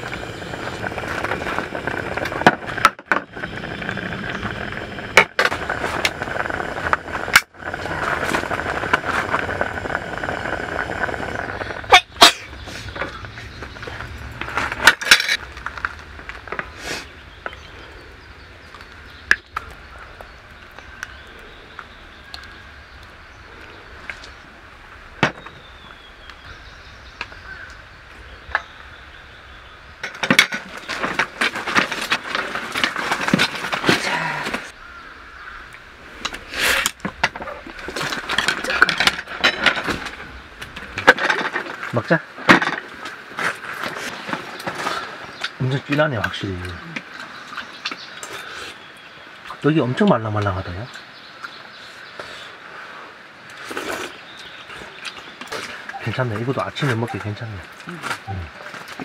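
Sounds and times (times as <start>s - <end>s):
gas stove hissing: 0.0s - 13.2s.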